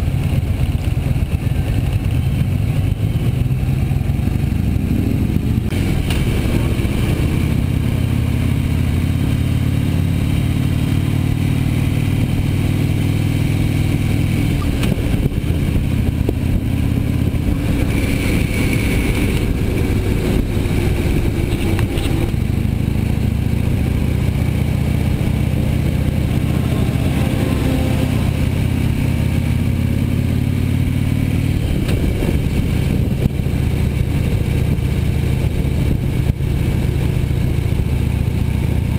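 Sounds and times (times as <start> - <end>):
motorcycle engine accelerating: 0.0 - 38.9.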